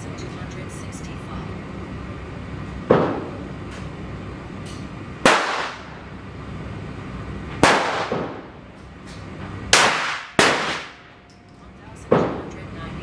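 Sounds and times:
pistol shots: 5.2s - 6.0s, 7.6s - 8.5s, 9.7s - 11.1s.

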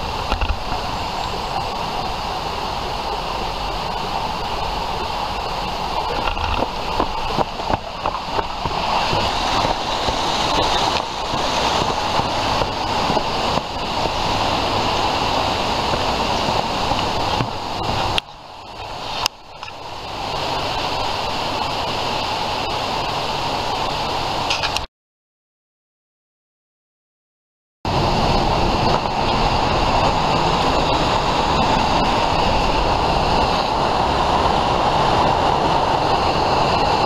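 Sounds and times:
rushing water: 0.0s - 24.9s, 27.9s - 37.0s
footsteps: 6.0s - 14.4s.

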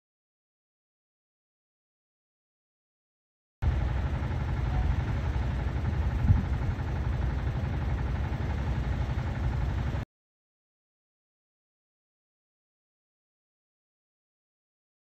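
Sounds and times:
wind buffeting a microphone: 6.1s - 6.8s.

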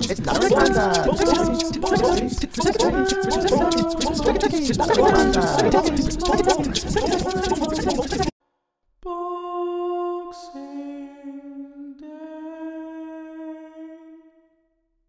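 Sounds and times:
person singing unaccompanied: 0.0s - 8.3s, 9.0s - 14.2s.

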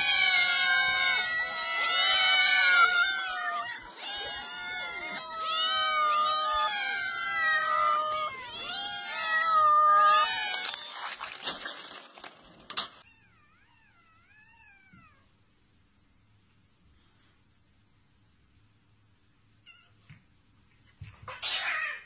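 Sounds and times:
cats meowing: 0.0s - 12.0s, 13.0s - 15.3s, 21.0s - 22.0s
kibble scattering on wood: 10.4s - 13.0s.

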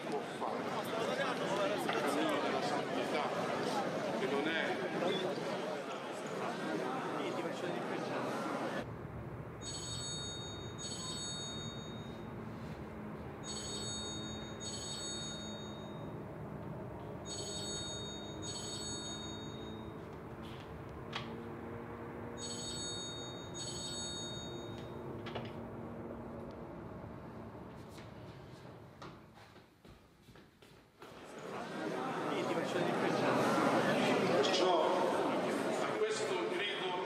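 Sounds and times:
mobile phone ringing: 9.6s - 12.7s, 13.4s - 16.3s, 17.1s - 20.2s, 22.4s - 25.2s.

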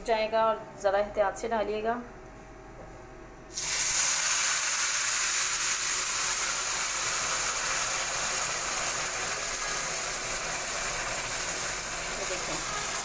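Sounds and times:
milk sizzling in hot fat: 3.5s - 13.0s.

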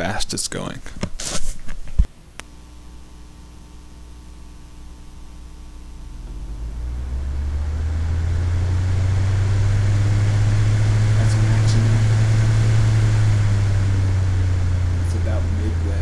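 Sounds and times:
fan wind noise on microphone: 5.6s - 16.0s.

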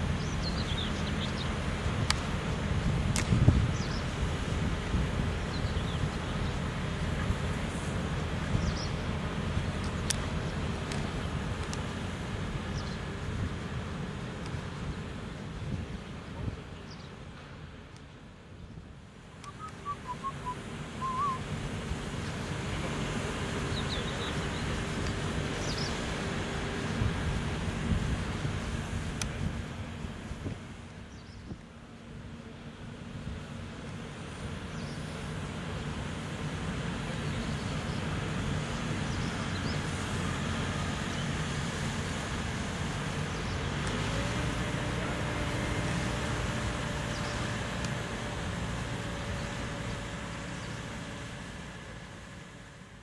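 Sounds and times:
wind rumble on microphone: 0.0s - 17.8s, 18.5s - 32.3s
engine running under load: 0.0s - 53.0s
bird whistling: 19.4s - 21.4s.

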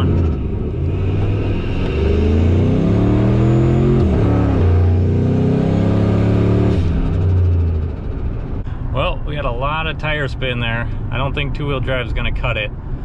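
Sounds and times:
engine revving at full throttle: 0.0s - 7.8s.

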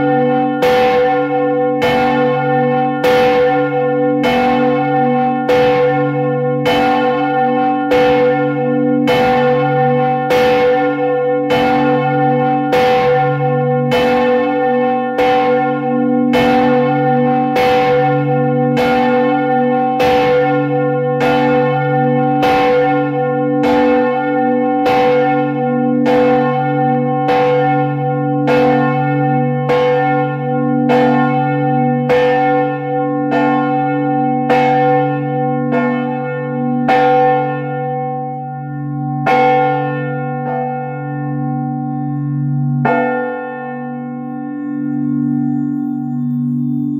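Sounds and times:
church bell ringing: 0.0s - 46.9s.

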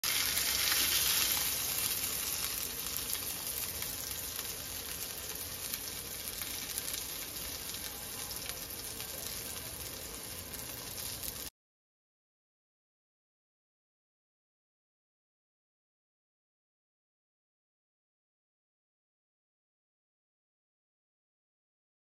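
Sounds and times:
fish sizzling in hot oil: 0.0s - 11.5s.

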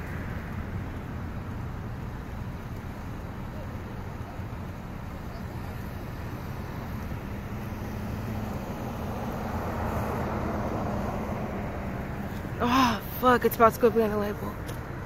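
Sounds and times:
traffic engine hum: 0.0s - 15.0s
car driving past: 7.3s - 12.5s.

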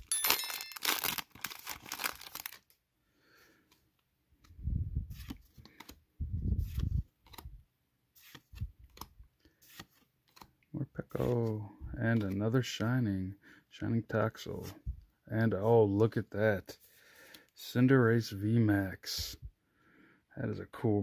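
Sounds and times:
foil wrapper tearing and crinkling: 0.1s - 2.7s.

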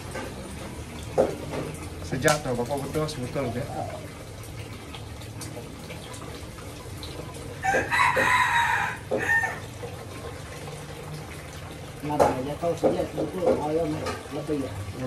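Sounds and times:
rooster crowing: 7.6s - 9.7s.

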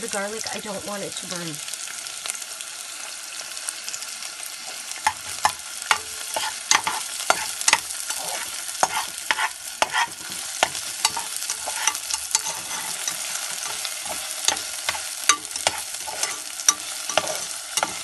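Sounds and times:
onions sizzling in oil: 0.0s - 18.0s
spatula scraping pan: 5.0s - 18.0s.

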